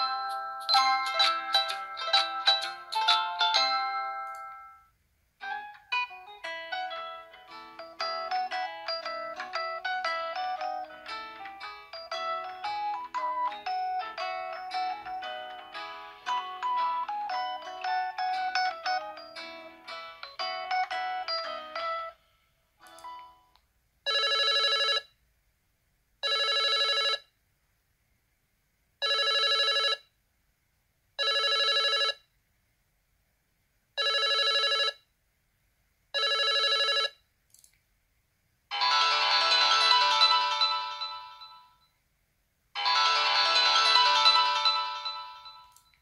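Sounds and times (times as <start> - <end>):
chiming ringtone: 0.0 - 4.8, 5.9 - 22.2, 31.2 - 32.2, 34.0 - 35.0, 36.2 - 37.2, 38.7 - 41.9, 42.8 - 46.0
warbling electronic ringtone: 38.7 - 41.8, 42.8 - 45.9.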